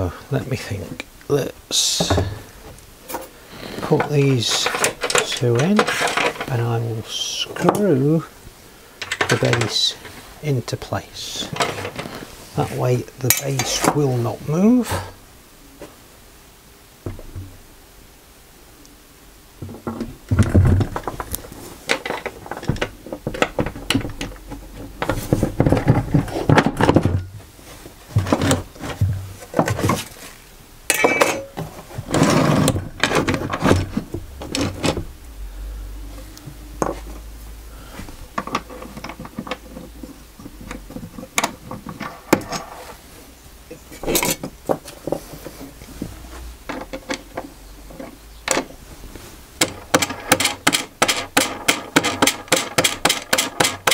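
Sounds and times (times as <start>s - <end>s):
steady low hum: 0.0s - 49.9s
wood and tools knocking on workbench: 17.0s - 17.6s.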